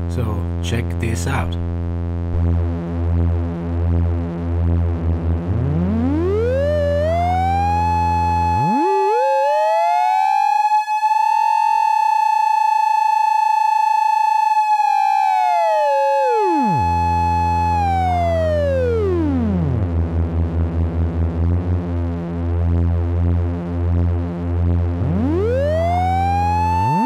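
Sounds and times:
oscillators droning and gliding: 5.4 - 9.8, 16.4 - 19.8, 25.0 - 27.0.

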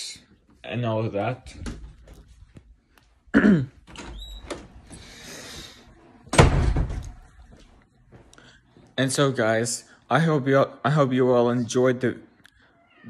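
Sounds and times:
loud thud: 6.3 - 7.2.

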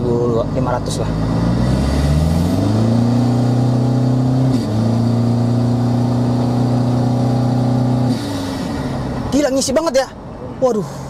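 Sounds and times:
diesel engine accelerating: 0.0 - 9.8.

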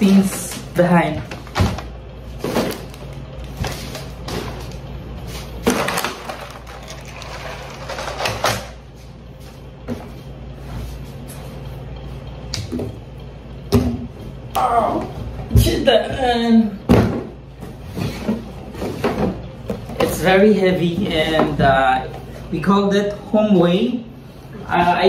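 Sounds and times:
steady low hum: 0.0 - 25.0
plastic packaging rustling: 5.7 - 8.4.

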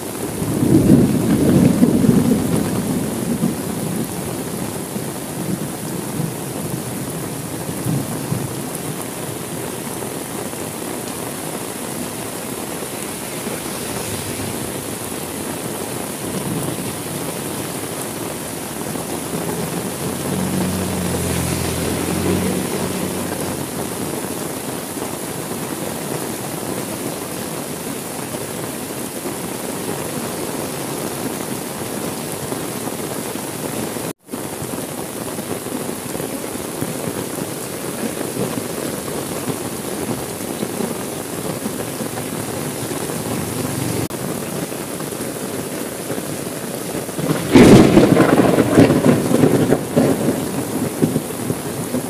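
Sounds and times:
heavy rain falling: 0.0 - 52.0
low rumble of thunder: 0.4 - 4.8, 12.2 - 17.8, 47.2 - 52.0.

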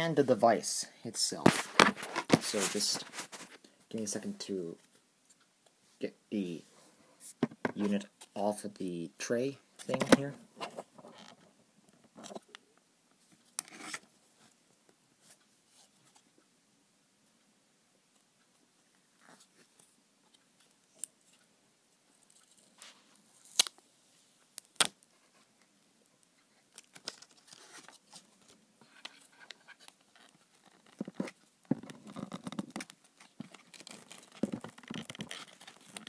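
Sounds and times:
plastic packaging rustling: 1.5 - 3.6, 26.7 - 36.0.

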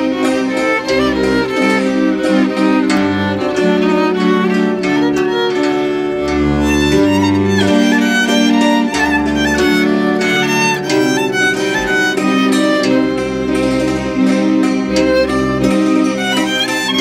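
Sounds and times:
low bass notes: 0.0 - 17.0
violin klezmer melody: 0.0 - 17.0.

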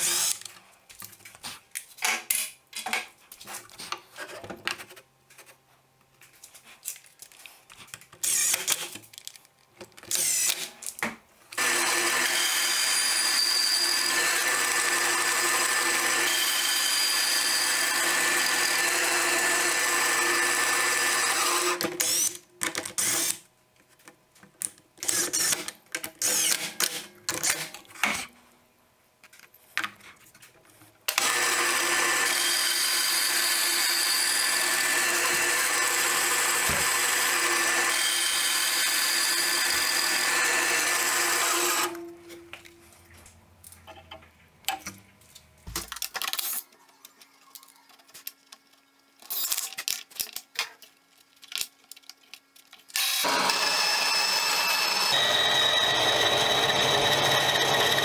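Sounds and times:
bandsaw cutting wood: 11.6 - 22.3, 31.1 - 42.0, 53.0 - 58.0.

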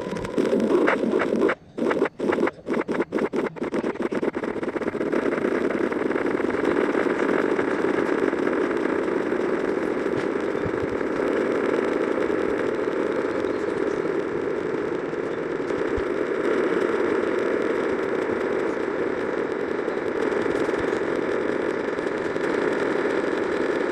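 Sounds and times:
overlapping video soundtracks droning: 0.0 - 23.9
rapid stutter: 0.0 - 23.9.

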